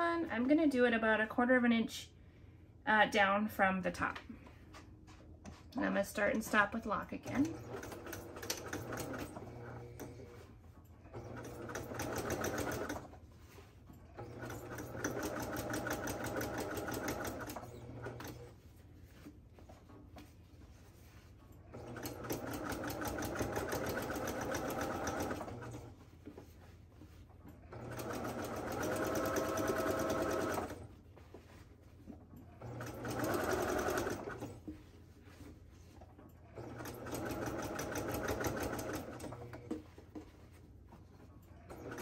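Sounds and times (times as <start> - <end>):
sewing machine stitching: 7.2 - 10.4, 11.0 - 13.2, 14.0 - 18.5, 21.6 - 26.0, 27.5 - 30.9, 32.4 - 34.7, 36.4 - 40.2, 41.6 - 42.0.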